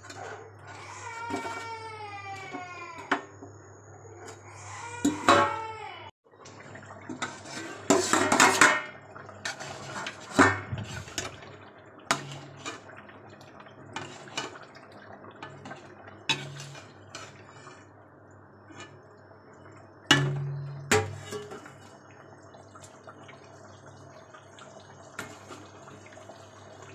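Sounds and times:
metal ladle scraping a pot: 7.2s - 8.8s, 9.4s - 11.4s, 12.1s - 12.9s, 15.5s - 17.8s, 20.1s - 21.8s.

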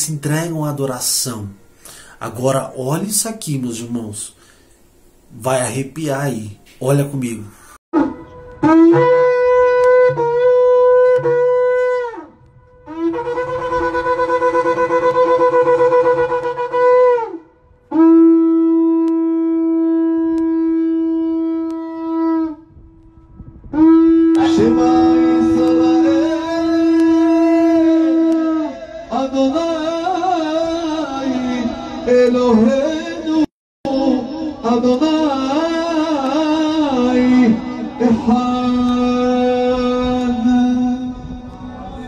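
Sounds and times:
shofar blasts over loudspeaker: 8.0s - 29.2s.

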